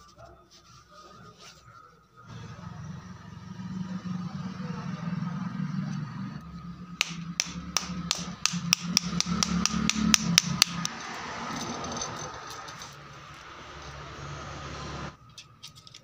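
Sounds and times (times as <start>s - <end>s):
metal rod tapping metal: 7.0s - 11.0s.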